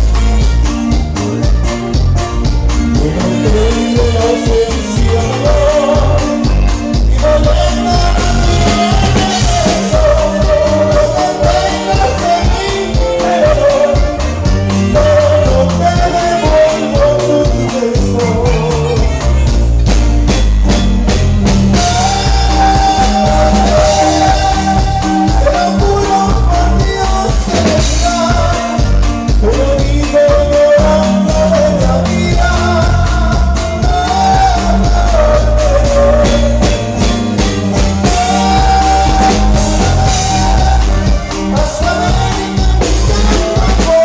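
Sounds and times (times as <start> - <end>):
bass and drum beat: 0.0 - 44.0
person singing melody: 0.0 - 44.0.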